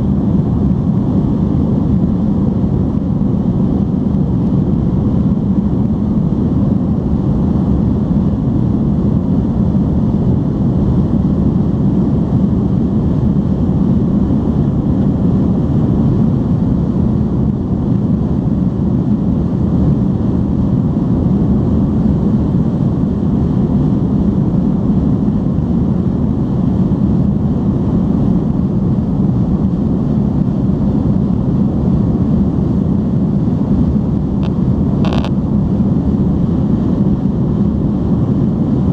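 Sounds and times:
jet engines rumbling: 0.0s - 38.9s.

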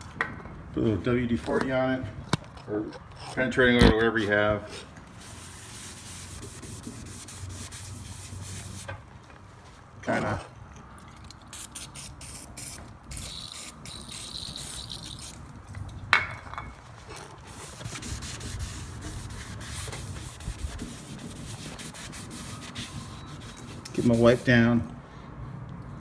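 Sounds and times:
cloth rag rubbing metal: 5.2s - 8.9s, 17.5s - 24.8s.

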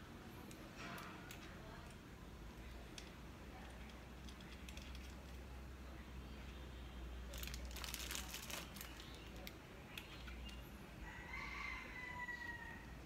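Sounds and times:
small metal clicks and rattle: 0.4s - 2.0s, 2.6s - 5.5s.

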